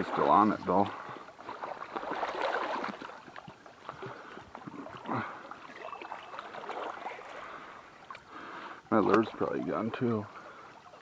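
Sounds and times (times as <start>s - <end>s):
creek water splashing: 0.0s - 11.0s.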